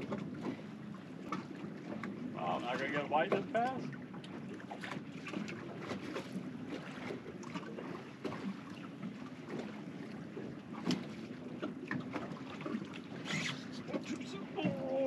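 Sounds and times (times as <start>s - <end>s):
water lapping against boat hull: 0.0s - 15.0s.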